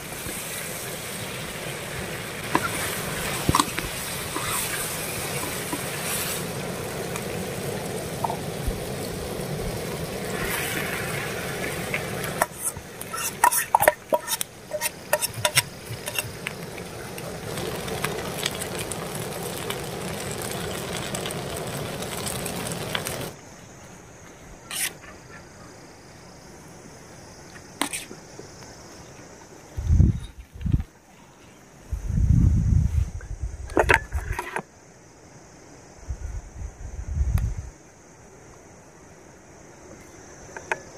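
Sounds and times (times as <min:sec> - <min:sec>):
food sizzling in a pan: 0:00.0 - 0:23.4, 0:24.6 - 0:25.0, 0:27.7 - 0:28.2
metal spoon scraping and stirring: 0:12.4 - 0:16.4, 0:24.7 - 0:25.0, 0:27.8 - 0:28.1.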